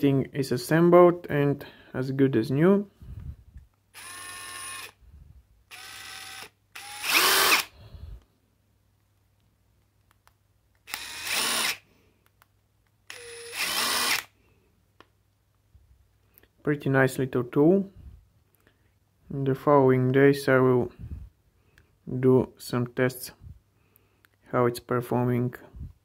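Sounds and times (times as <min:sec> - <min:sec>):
impact driver motor whining: 0:04.0 - 0:05.0, 0:05.7 - 0:07.8, 0:10.9 - 0:11.8, 0:13.1 - 0:14.3.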